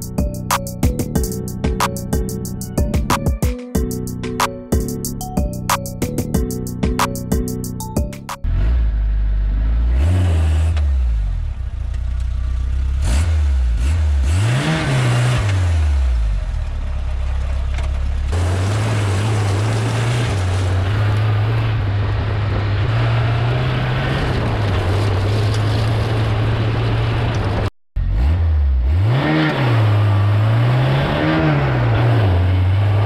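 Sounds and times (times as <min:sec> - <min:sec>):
car engine revving: 0:08.4 - 0:33.0.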